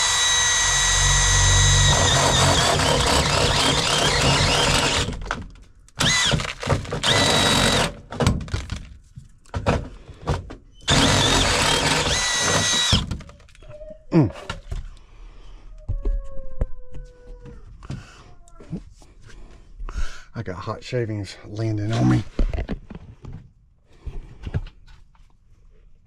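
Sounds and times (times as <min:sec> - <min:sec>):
power drill cutting sheet metal: 0:00.0 - 0:05.2, 0:06.0 - 0:08.0, 0:10.8 - 0:13.2.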